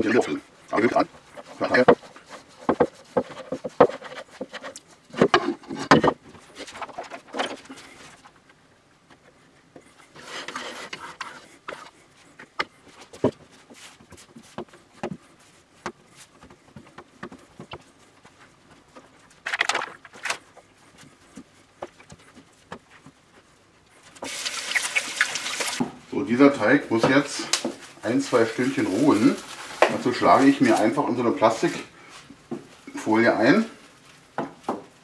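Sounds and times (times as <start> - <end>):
hands kneading dough: 0.0 - 35.0
rubbing scuffs: 9.8 - 19.4.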